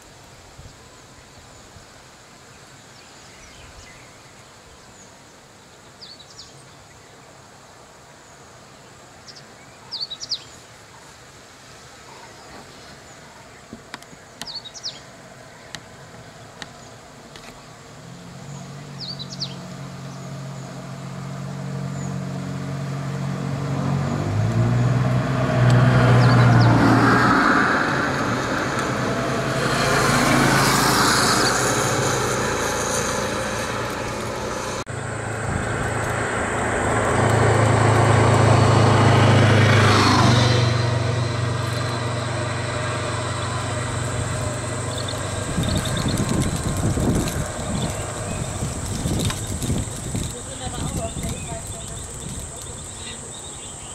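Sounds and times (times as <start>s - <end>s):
bird chirps: 9.2s - 11.1s, 12.1s - 15.8s, 18.5s - 20.4s, 26.2s - 26.8s, 42.9s - 46.5s
vehicle engines passing: 12.4s - 53.9s.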